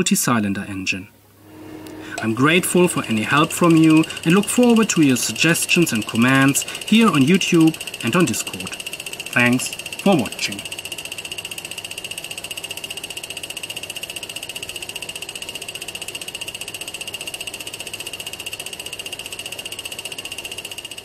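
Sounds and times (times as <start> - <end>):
engine pulsing: 1.4 - 21.0.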